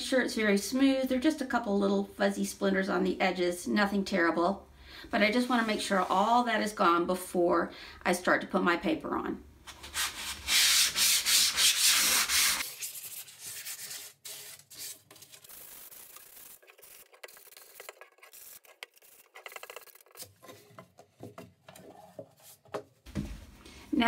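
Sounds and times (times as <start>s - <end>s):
sandpaper rubbing on wood: 9.8s - 20.2s.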